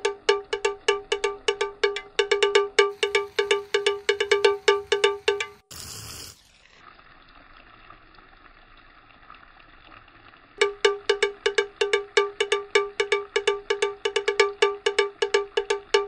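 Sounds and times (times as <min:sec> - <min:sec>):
rapid metallic ringing strikes: 0:00.0 - 0:05.7, 0:10.6 - 0:16.0
faint hiss: 0:03.0 - 0:06.4.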